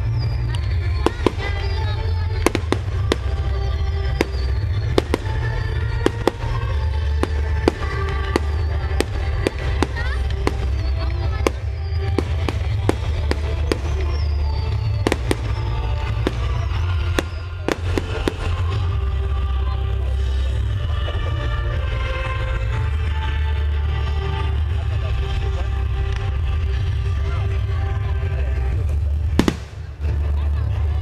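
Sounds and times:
fireworks bursting: 0.0 - 20.8, 28.8 - 30.4
music playing: 0.0 - 31.0.

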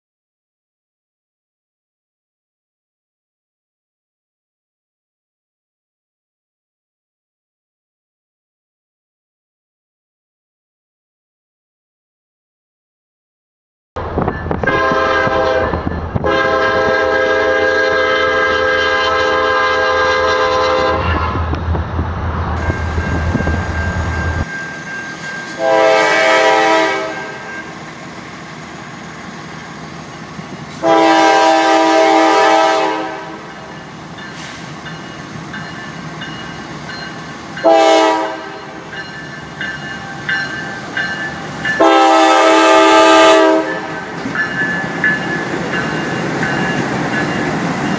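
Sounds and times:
train rumble: 14.0 - 47.9
locomotive air horn: 14.6 - 21.4, 25.5 - 27.7, 30.8 - 33.7, 37.6 - 38.9, 41.8 - 44.1.

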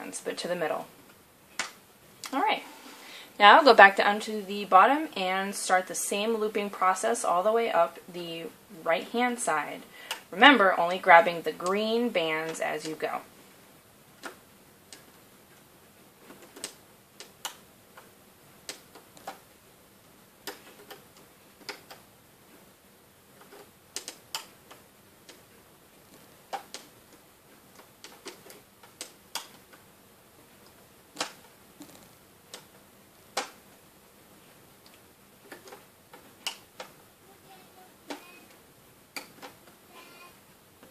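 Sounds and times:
faint hiss: 0.0 - 40.9
hook and rubber bands clicking on pegs: 20.4 - 22.1, 23.4 - 29.9, 30.5 - 33.7, 34.8 - 37.0, 38.1 - 39.8.

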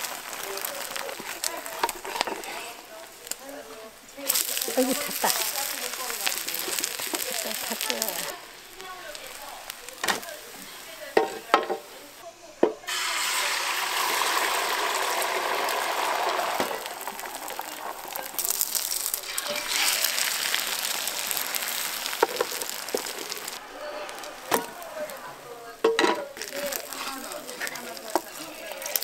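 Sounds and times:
food sizzling in a pan: 0.0 - 29.0
utensils clicking and knocking: 22.1 - 23.5.

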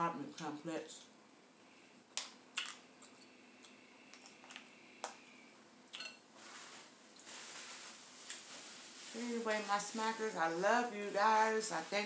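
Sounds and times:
soft rustle: 6.3 - 12.0.

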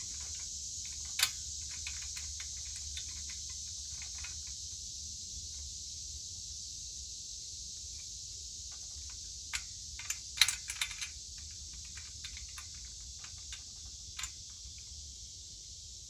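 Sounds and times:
steady high hiss: 0.0 - 16.0
wrench clicking on metal: 0.1 - 4.6, 8.7 - 14.4.

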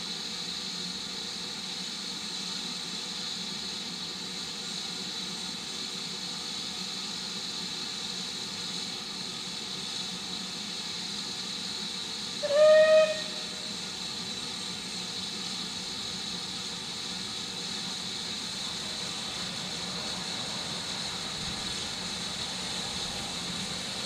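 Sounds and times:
steam hissing: 0.0 - 24.0
steam whistle blast: 12.4 - 13.8.

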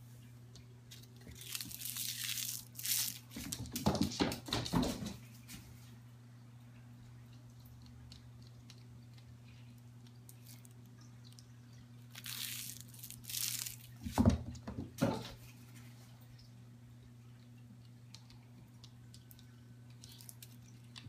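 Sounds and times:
foil ball crinkling: 0.9 - 3.8, 10.0 - 10.9, 12.1 - 14.3.

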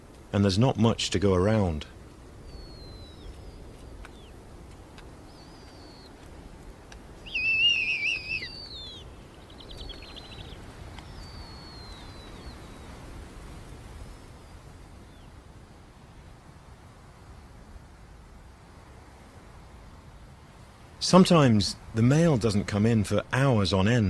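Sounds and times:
owlets peeping: 2.4 - 6.2, 7.2 - 13.0
owlets squealing: 7.2 - 9.0.

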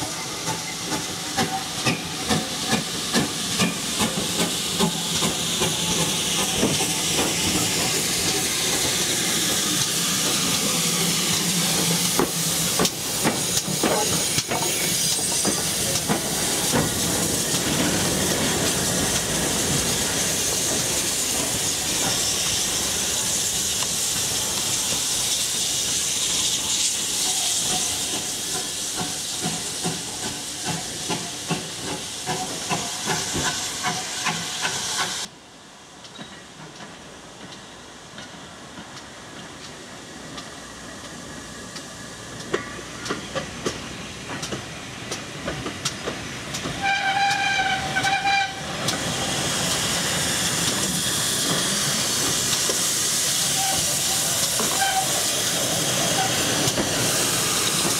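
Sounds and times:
steam locomotive hissing: 0.0 - 57.9
locomotive whistle blast: 46.8 - 48.6, 54.6 - 55.2.

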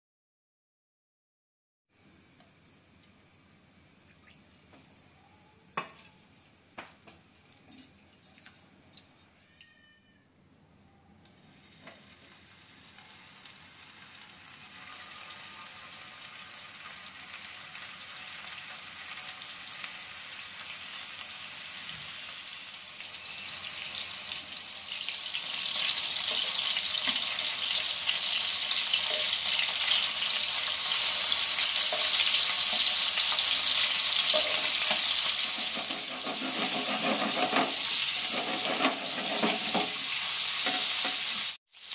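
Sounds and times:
food sizzling in oil: 11.5 - 41.9.

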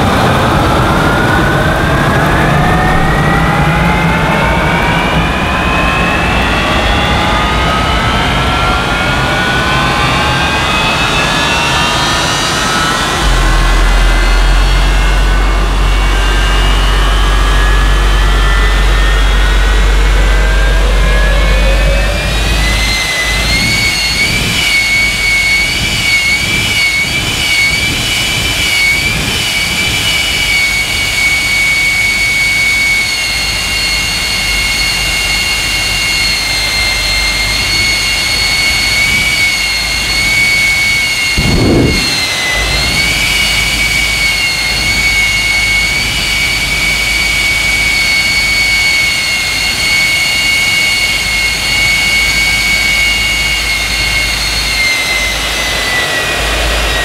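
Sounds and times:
jet engine whining at idle: 0.0 - 57.0
short low engine burst: 11.9 - 25.0, 41.2 - 44.8.

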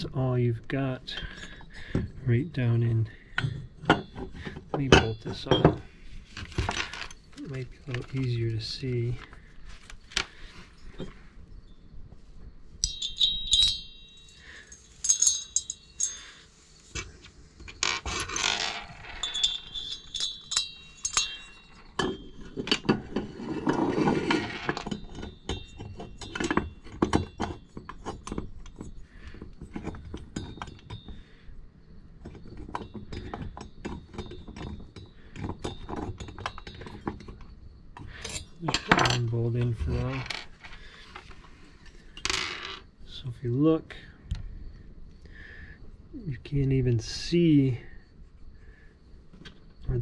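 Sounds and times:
bumps and scrapes: 1.0 - 13.0, 14.4 - 31.2, 32.2 - 42.0
metal engine parts clinking: 1.0 - 31.4, 32.2 - 43.3.

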